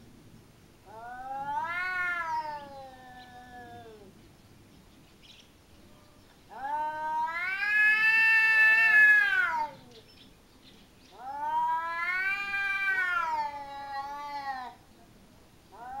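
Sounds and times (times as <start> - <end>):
cats yowling: 0.8 - 4.1, 6.5 - 10.0, 11.1 - 14.8, 15.7 - 16.0.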